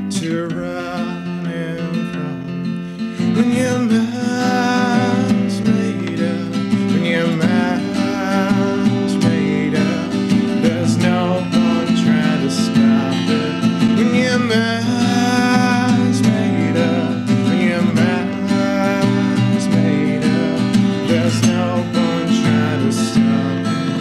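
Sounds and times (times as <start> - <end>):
acoustic guitar strumming: 0.0 - 24.0
man singing: 0.0 - 24.0.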